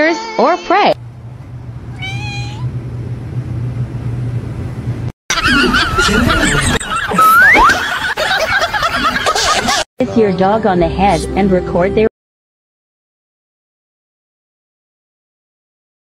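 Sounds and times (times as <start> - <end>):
steady low hum: 1.0 - 9.0
cat meowing: 1.9 - 2.7
warbling wavering pitched sounds: 6.3 - 7.8.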